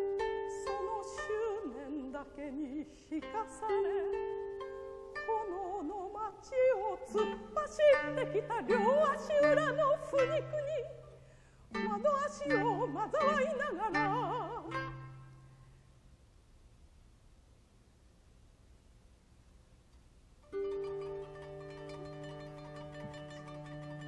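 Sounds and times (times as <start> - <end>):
plucked koto strings: 0.0 - 15.7, 20.4 - 24.0
woman singing operatically: 0.5 - 4.5, 5.2 - 15.2.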